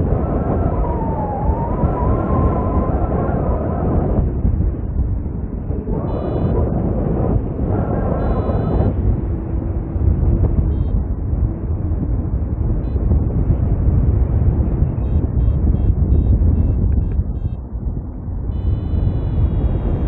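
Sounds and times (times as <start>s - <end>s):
wind buffeting microphone: 0.0s - 20.0s
variometer electronic beeps: 5.9s - 6.7s, 8.0s - 9.0s, 10.6s - 11.0s, 15.0s - 17.6s, 18.5s - 19.6s.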